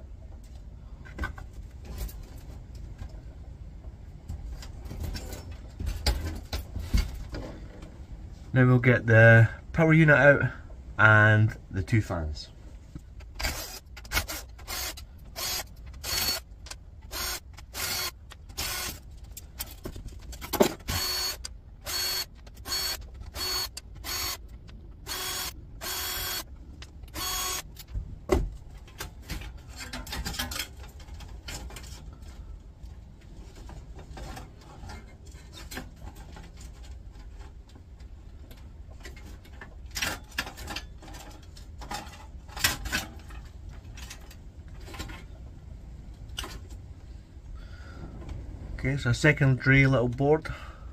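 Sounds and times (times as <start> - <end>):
drill motor whirs: 13.4 - 16.5, 17.1 - 19.0, 20.8 - 24.4, 25.0 - 26.5, 27.1 - 27.7.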